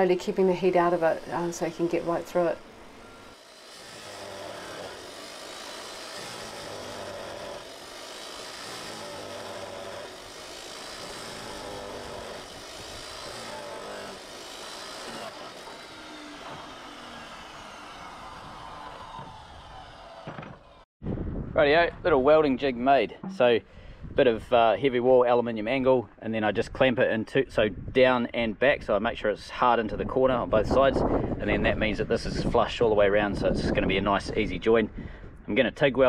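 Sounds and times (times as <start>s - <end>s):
cut-off saw cutting metal pipe: 0.0s - 20.3s.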